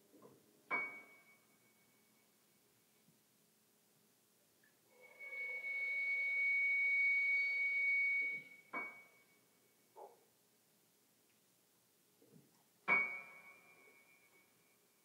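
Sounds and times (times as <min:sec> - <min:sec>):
high pure steady tone: 0:04.9 - 0:09.8.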